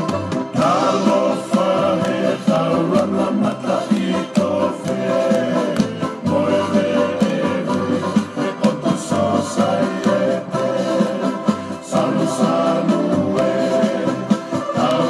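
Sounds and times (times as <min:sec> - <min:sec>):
choir singing: 0:00.5 - 0:15.0
percussive taps: 0:03.9 - 0:06.0.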